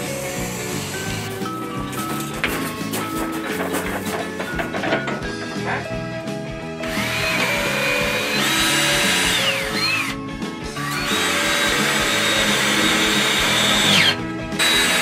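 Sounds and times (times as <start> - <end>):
background music: 0.0 - 15.0
cordless drill motor whine: 6.8 - 10.2, 10.8 - 15.0.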